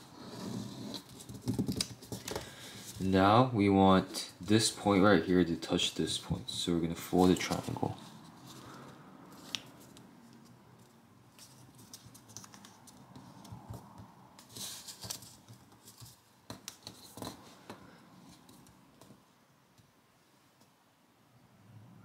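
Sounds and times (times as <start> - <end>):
paper rustling and crinkling: 7.2 - 13.8, 14.4 - 17.6.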